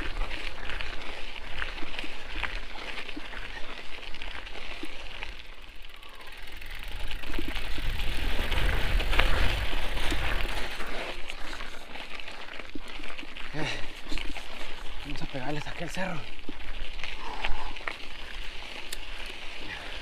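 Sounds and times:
bike rattles and clicks: 0.0s - 20.0s
tyres crunching on gravel: 0.0s - 20.0s
wind rumbling on microphone: 6.0s - 12.1s.

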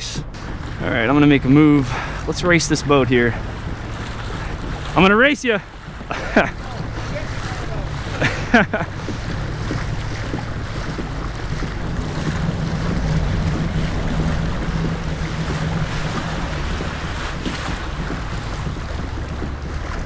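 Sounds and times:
water rushing along a kayak hull: 0.0s - 20.0s
wind buffeting microphone: 0.0s - 20.0s.

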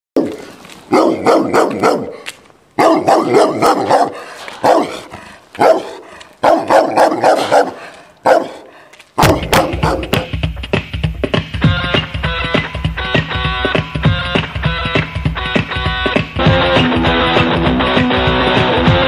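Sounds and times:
dog barking: 0.2s - 2.2s, 2.8s - 10.3s
guitar rock music: 9.4s - 19.0s.

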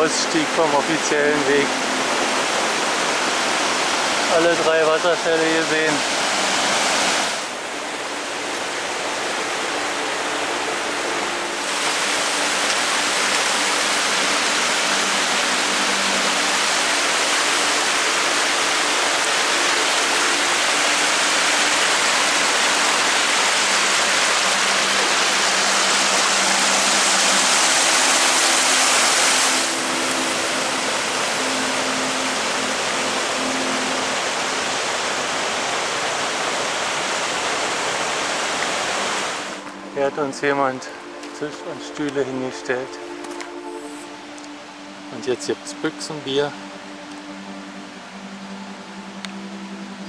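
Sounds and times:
stream rushing over rocks: 0.0s - 50.0s.

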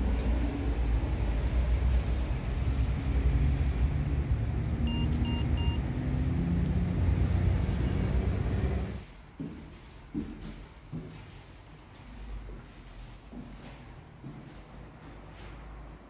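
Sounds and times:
steady low rumble: 0.0s - 9.0s
intercom keypad beeps: 4.9s - 5.8s.

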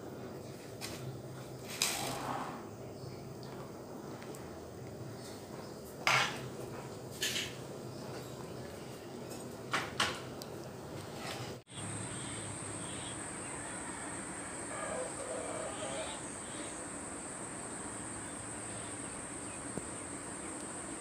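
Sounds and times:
high-pitched insect drone: 11.7s - 21.0s.

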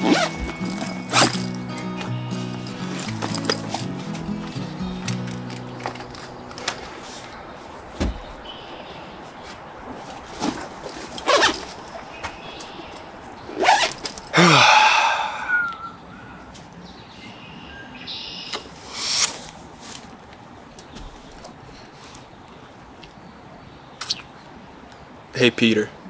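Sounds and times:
backpack rustling and swishing: 0.0s - 8.6s, 9.3s - 12.4s, 13.4s - 14.4s
birds chirping: 0.0s - 19.1s, 20.7s - 25.7s.

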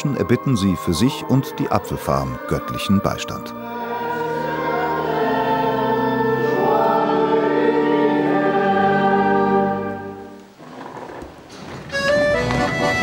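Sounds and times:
congregation singing a hymn: 0.0s - 10.4s.

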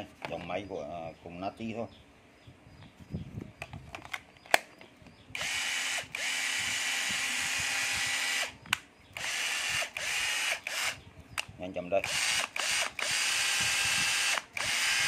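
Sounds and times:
sharp handling clicks: 3.6s - 4.9s
cordless drill motor whine: 5.4s - 8.6s, 9.2s - 11.0s, 12.0s - 15.0s.

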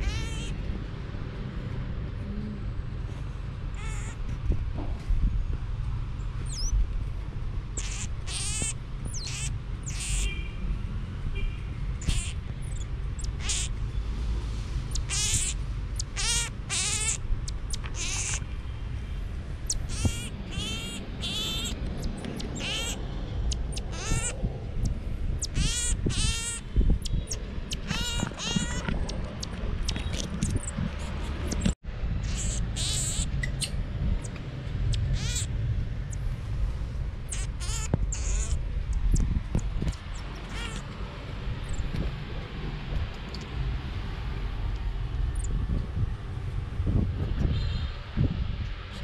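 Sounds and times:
marmoset high-pitched trill calls: 0.0s - 0.6s, 3.8s - 4.2s, 6.4s - 6.8s, 7.8s - 10.3s, 12.0s - 13.8s, 14.9s - 18.4s, 19.7s - 24.4s, 25.4s - 34.3s, 34.9s - 35.5s, 37.3s - 39.2s, 39.9s - 40.8s.

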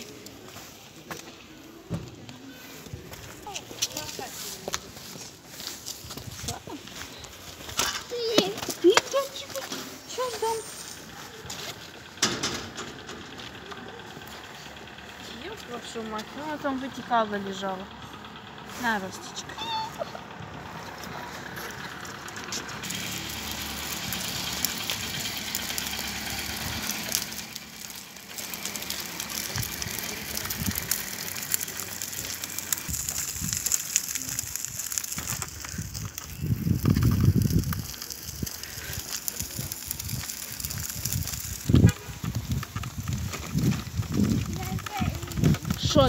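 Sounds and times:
pushchair wheels rolling on path: 0.0s - 46.0s
low rumble: 23.6s - 46.0s.

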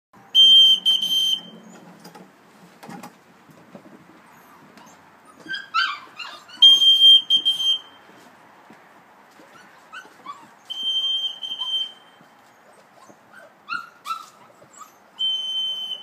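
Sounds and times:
dog whistle tone: 0.4s - 1.6s, 6.6s - 7.9s, 10.7s - 12.1s, 15.2s - 16.0s
puppies whimpering and yipping: 4.3s - 6.8s, 9.4s - 10.8s, 11.5s - 15.2s.

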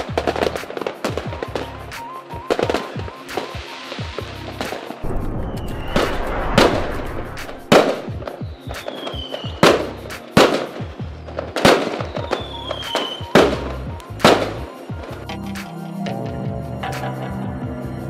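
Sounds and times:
fireworks crackling: 0.0s - 15.2s
fireworks bangs: 4.6s - 10.9s
faint falling whistles: 5.0s - 9.6s, 12.0s - 13.3s.

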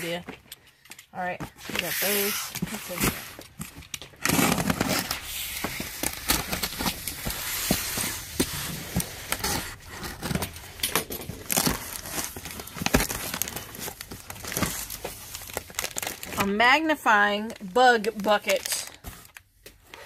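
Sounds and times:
packaged items rustling: 0.0s - 20.0s
box cutter slicing packing tape: 4.2s - 10.3s.

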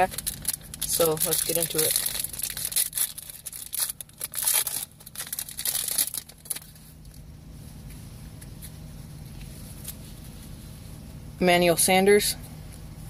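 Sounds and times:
foil wrapper tearing and crinkling: 0.0s - 6.8s.

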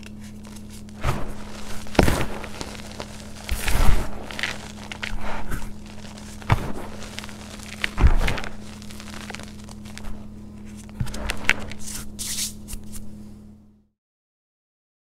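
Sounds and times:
powder crunching and crumbling: 0.0s - 12.6s
faint low hum: 0.0s - 13.9s.

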